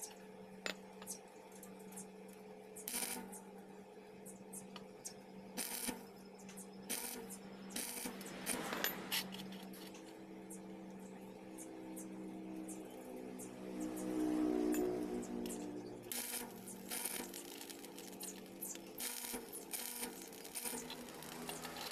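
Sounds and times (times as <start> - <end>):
steady low hum: 0.0 - 21.9
crackling welding arc: 2.8 - 3.4, 5.6 - 6.1, 6.9 - 9.9, 15.2 - 21.9
welding electrode sputtering: 2.8 - 3.4, 5.6 - 6.1, 6.9 - 10.0, 15.3 - 21.9.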